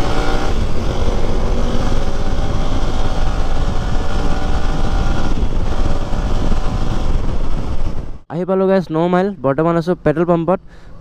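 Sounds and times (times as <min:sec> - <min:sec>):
motorcycle engine running: 0:00.0 - 0:08.2
wind rumble on microphone: 0:00.0 - 0:08.2.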